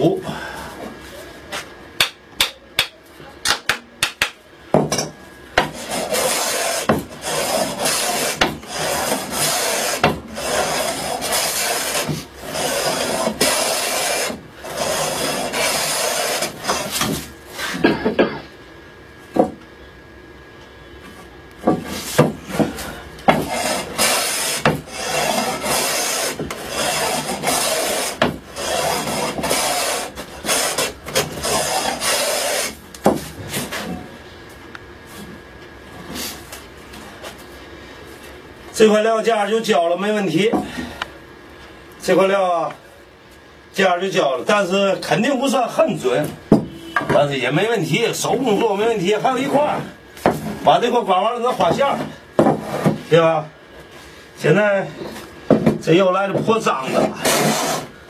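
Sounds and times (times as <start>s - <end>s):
hand plane cutting wood: 5.6s - 17.7s, 23.3s - 32.8s, 56.8s - 57.9s.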